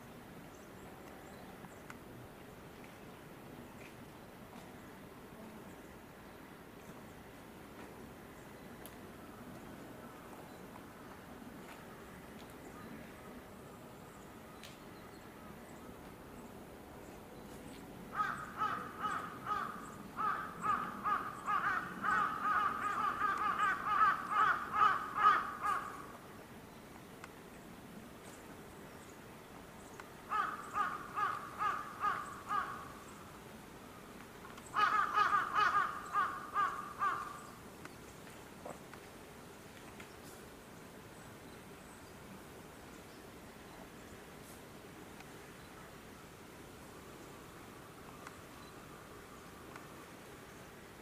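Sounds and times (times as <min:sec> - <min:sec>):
crow cawing: 0:18.1 - 0:26.1, 0:30.3 - 0:32.9, 0:34.8 - 0:37.5.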